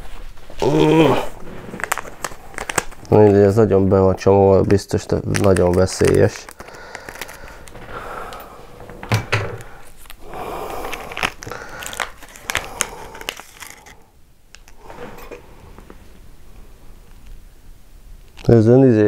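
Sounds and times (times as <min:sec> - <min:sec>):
foil packet crinkling: 0:01.3 - 0:08.4, 0:09.6 - 0:14.8.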